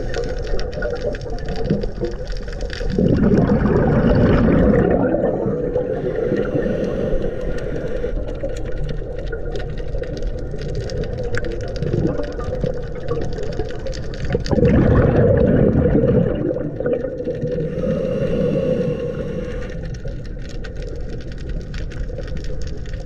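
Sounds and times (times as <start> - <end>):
rush of exhaled bubbles: 0.0 - 23.0
steady underwater hum: 0.0 - 23.0
diver breathing through regulator: 5.6 - 8.4, 17.4 - 20.2.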